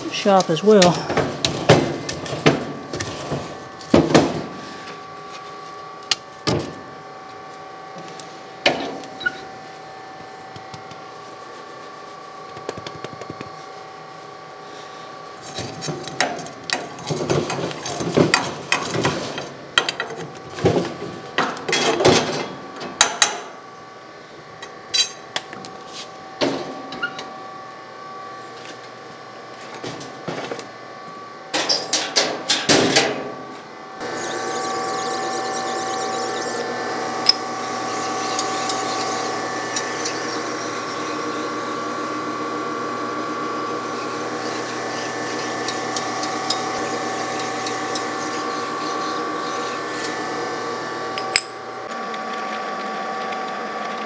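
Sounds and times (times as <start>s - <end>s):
surface grinder humming: 34.0s - 54.0s.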